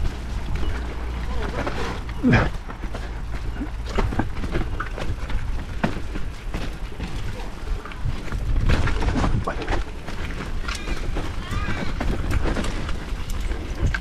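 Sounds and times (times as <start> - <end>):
bike rattling and clicking: 0.0 - 14.0
bike tyres rumbling on dirt: 0.0 - 14.0
wind rumble on microphone: 3.5 - 14.0.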